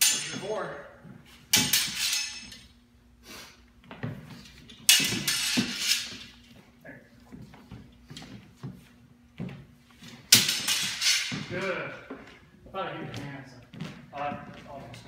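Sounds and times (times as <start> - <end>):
steel swords clashing: 0.0 - 0.8, 1.5 - 2.7, 4.8 - 6.4, 10.3 - 11.6.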